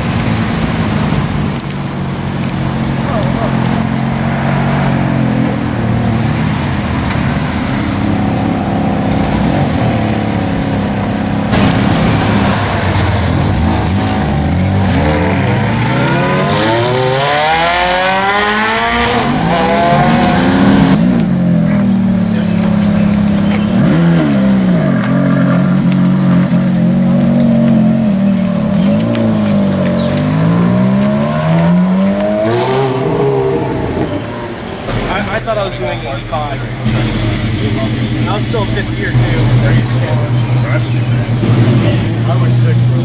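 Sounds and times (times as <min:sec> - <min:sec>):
sports car engine revving: 0:00.0 - 0:43.0
second car idling: 0:20.5 - 0:31.2, 0:32.9 - 0:43.0.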